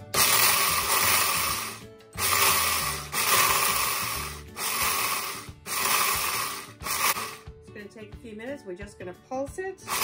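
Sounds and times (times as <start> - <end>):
blender grinding dry beans: 0.0 - 7.5.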